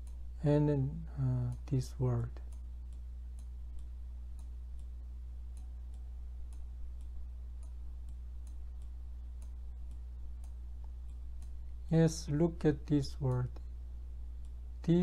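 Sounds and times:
faint thin clicks ticking: 0.0 - 0.2, 1.4 - 11.8, 12.5 - 13.8
low electrical hum: 0.0 - 15.0.

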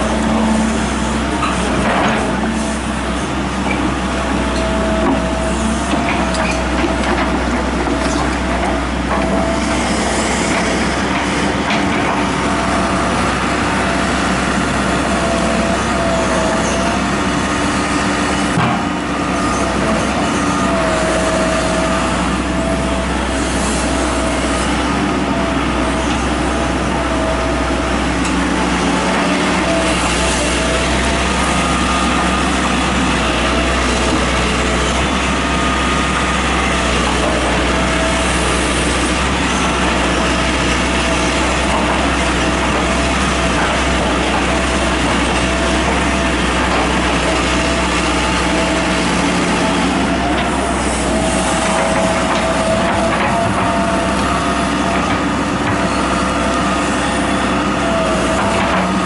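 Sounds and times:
excavator diesel engine running: 0.0 - 59.0.

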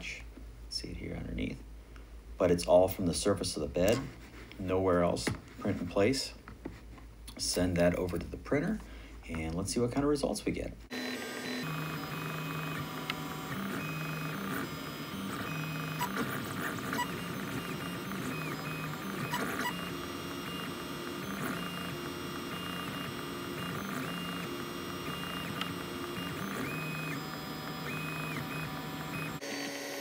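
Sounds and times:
cooling fan whirring: 10.8 - 30.0
stepper motors singing: 11.0 - 29.8.

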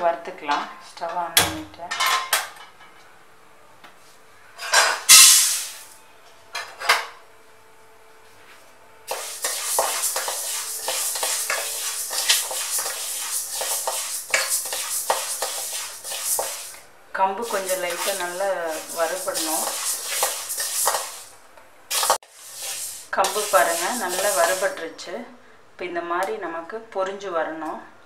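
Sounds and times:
spoon scraping grain in a pan: 9.1 - 16.8, 17.4 - 21.3, 21.9 - 24.8.

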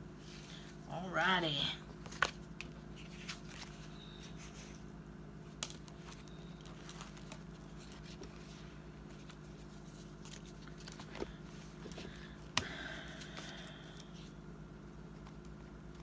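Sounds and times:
steady low hum: 0.0 - 16.0
planner pages rustling: 2.0 - 12.2.

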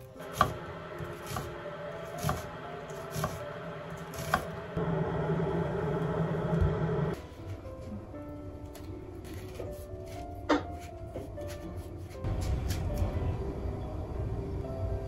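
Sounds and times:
steady low hum: 0.2 - 7.2.

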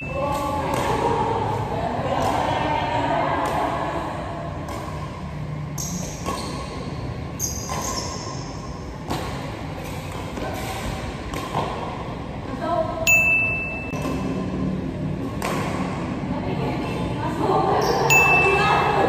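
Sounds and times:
rackets hitting shuttlecock: 0.0 - 2.5, 3.4 - 12.2, 13.1 - 16.2.

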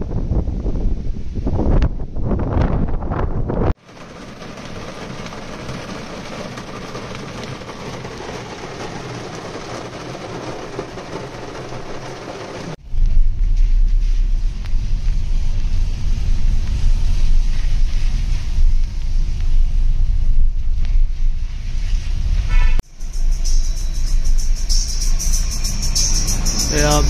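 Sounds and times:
vehicle rumbling: 0.0 - 27.0
steady road hiss: 21.2 - 27.0.

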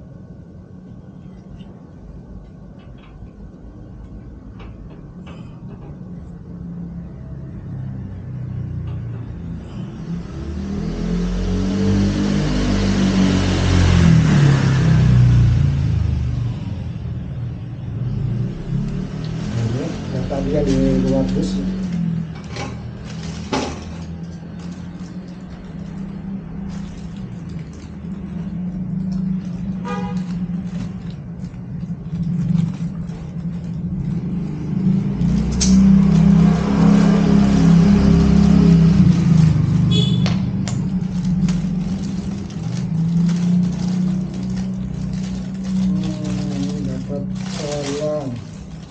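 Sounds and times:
vehicle engine passing: 6.1 - 48.9.

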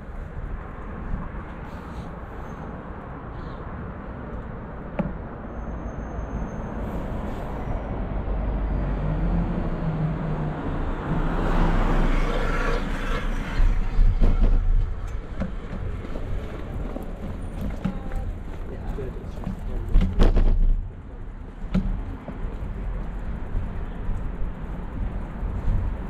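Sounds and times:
road noise: 0.0 - 26.0.

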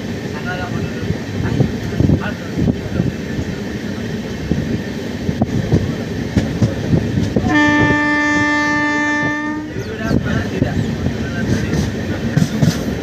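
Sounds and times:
train rumbling on rails: 0.0 - 13.0
locomotive horn blast: 7.4 - 9.8.

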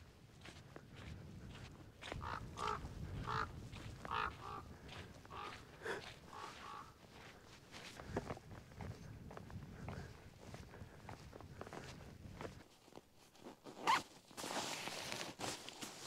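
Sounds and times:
bird calling: 2.2 - 3.5, 4.1 - 4.7, 5.3 - 5.6, 6.2 - 7.0.

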